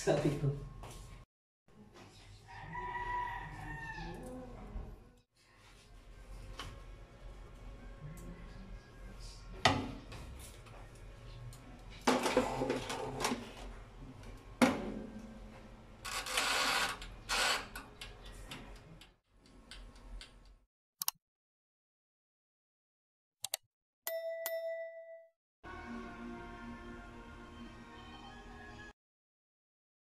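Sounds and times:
bell ding: 24.1 - 25.3.

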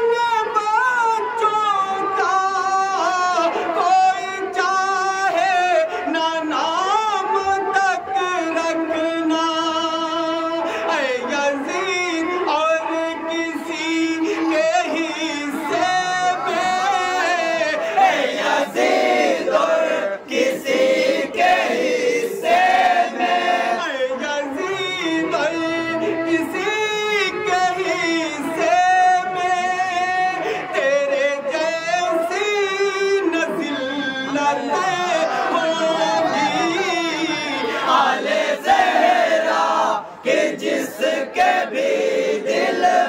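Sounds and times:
men singing devotional poem: 0.0 - 43.0
group of voices singing: 9.7 - 43.0.

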